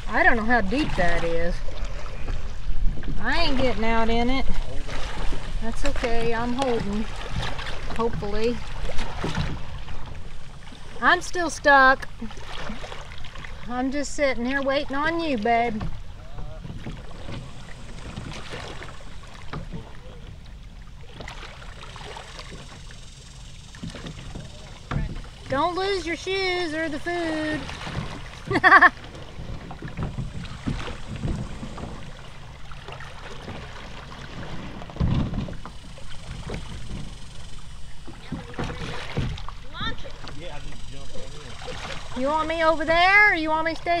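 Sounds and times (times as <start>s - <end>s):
wind rumble on microphone: 0.0s - 10.6s
small waves splashing on hull: 0.0s - 44.0s
water lapping on rocky shore: 0.0s - 44.0s.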